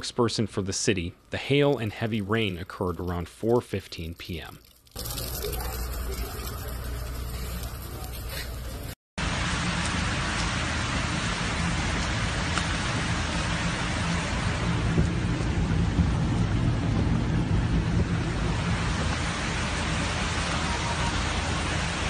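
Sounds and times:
heavy rain falling: 5.0 - 22.0
low rumble: 5.0 - 22.0.

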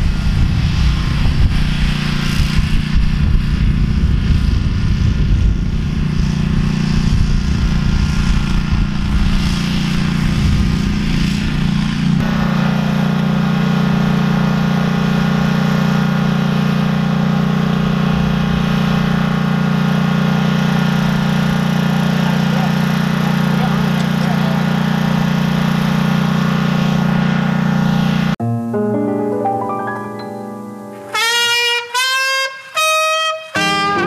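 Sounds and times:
wind gusts on microphone: 0.0 - 12.2
small gasoline engine running: 0.0 - 28.4.

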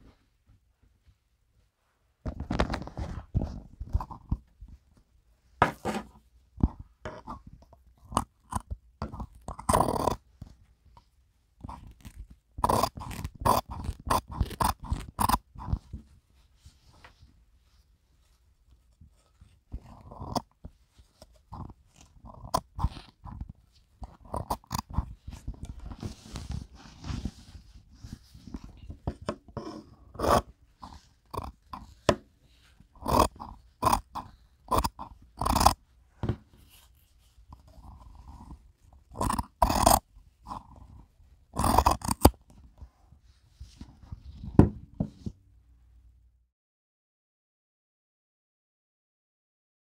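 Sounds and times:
scissors snipping fabric: 11.7 - 15.8, 41.6 - 42.4
fabric rustling: 25.2 - 29.0.

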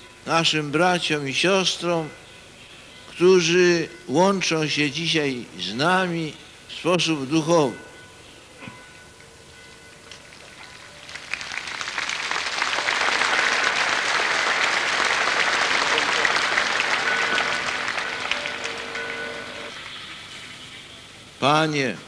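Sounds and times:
large crowd applauding: 10.4 - 20.0.

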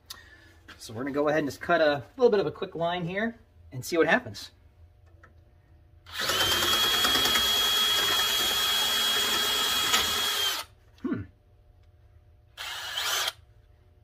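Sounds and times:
electric drill whining: 6.1 - 10.7, 12.6 - 13.4.

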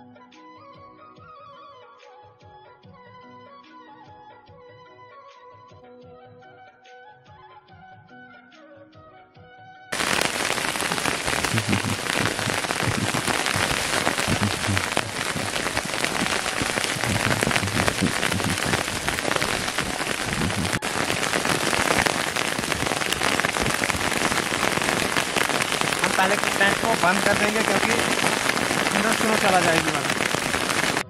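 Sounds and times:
wet snow pattering on tent: 10.0 - 31.0.

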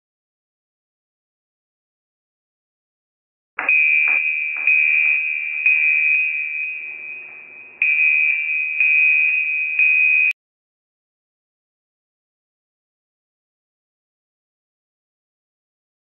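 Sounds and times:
high electronic alarm tone: 3.6 - 10.4.

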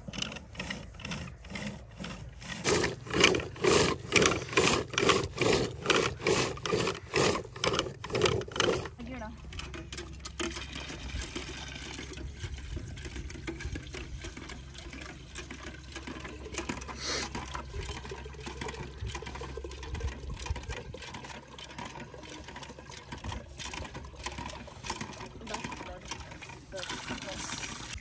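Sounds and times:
wooden churn sloshing and knocking: 0.0 - 28.0.

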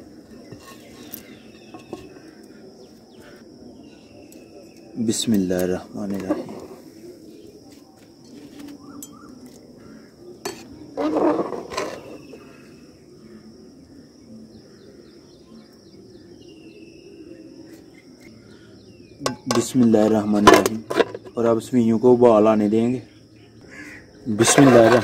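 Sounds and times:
high insect trill: 0.0 - 25.0
spoon scraping metal pot: 0.3 - 2.3, 6.1 - 6.8, 10.4 - 12.5, 19.2 - 21.4, 24.4 - 25.0.

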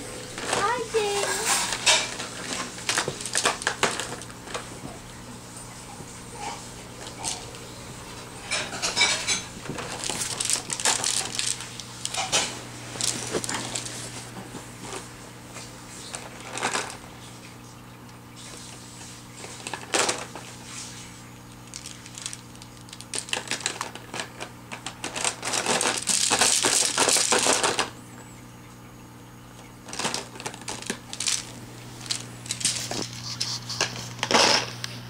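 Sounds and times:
steady low hum: 0.0 - 35.0
plastic toy links clattering: 9.0 - 13.9, 21.6 - 27.9, 29.9 - 32.8.

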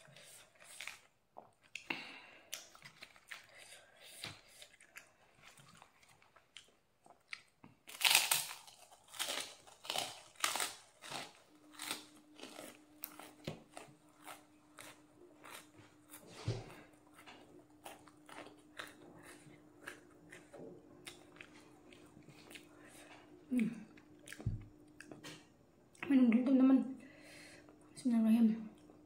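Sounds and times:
faint steady hum: 0.0 - 29.0
crunching and chewing cracker: 0.2 - 25.4.

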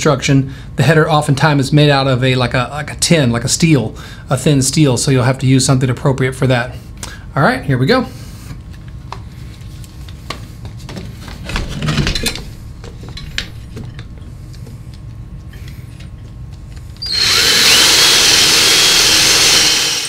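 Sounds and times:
drill cutting into wood: 17.0 - 20.0.

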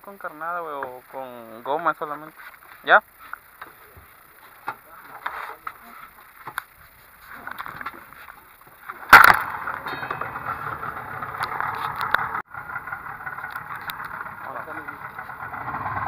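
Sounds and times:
outboard motor starting and idling: 8.9 - 16.0.

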